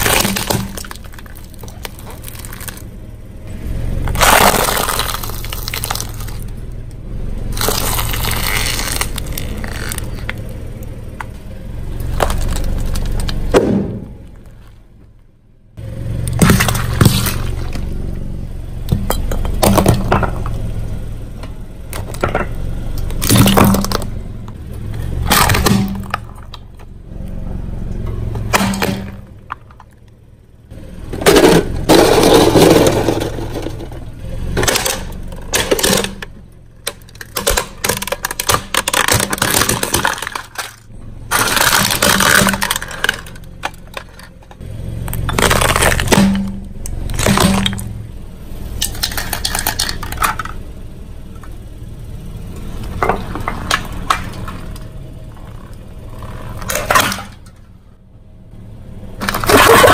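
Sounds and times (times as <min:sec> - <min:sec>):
tyre crushing brittle objects: 0:00.0 - 0:06.6, 0:07.5 - 0:14.8, 0:16.2 - 0:18.0, 0:21.9 - 0:24.2, 0:24.8 - 0:26.8, 0:28.3 - 0:30.0, 0:31.1 - 0:48.0, 0:48.6 - 0:50.6, 0:52.8 - 0:57.6, 0:59.2 - 0:59.9
car engine running: 0:00.0 - 0:59.9.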